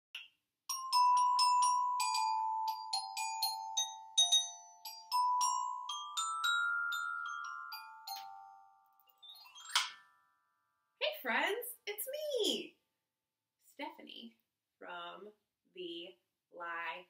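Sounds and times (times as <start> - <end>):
glockenspiel tune: 0.7 - 10.5.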